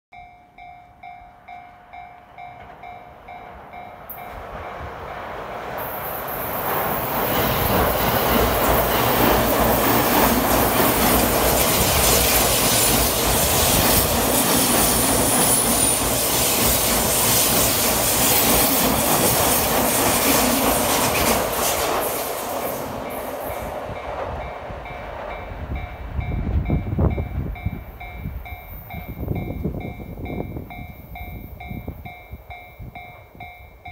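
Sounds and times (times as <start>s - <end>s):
low rumble of approaching train: 0.1s - 33.9s
train wheels clattering and squealing: 5.8s - 25.5s.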